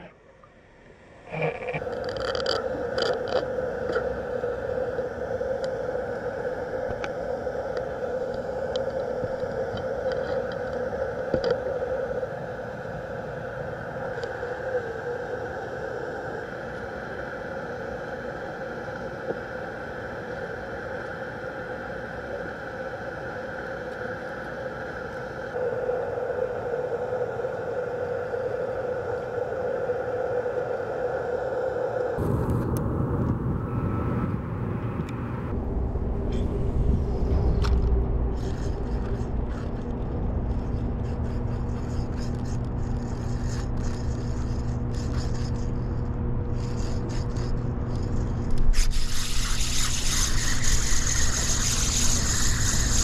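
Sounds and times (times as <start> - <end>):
underwater droning hum: 0.0 - 53.0.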